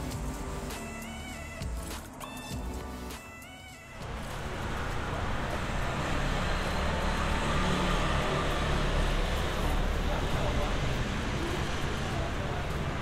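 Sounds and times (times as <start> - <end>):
music track: 0.0 - 8.6
road traffic rumble: 0.0 - 13.0.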